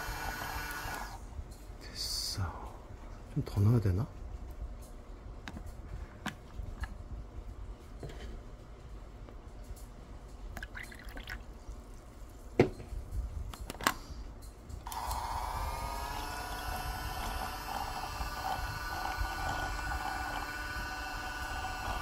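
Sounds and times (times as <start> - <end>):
small electric motor whirring: 0.0 - 1.2, 14.8 - 22.0
liquid pouring: 10.6 - 11.5.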